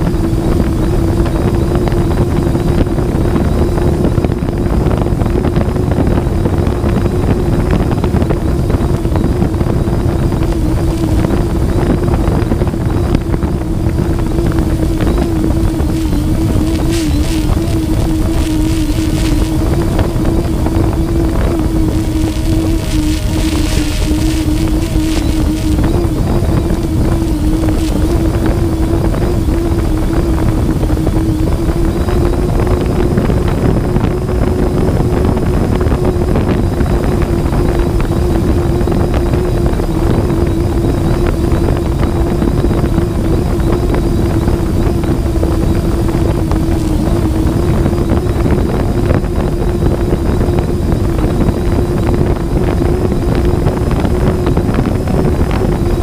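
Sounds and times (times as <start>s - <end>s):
drone propellers humming: 0.0s - 56.0s
wind rushing over microphone: 0.0s - 56.0s.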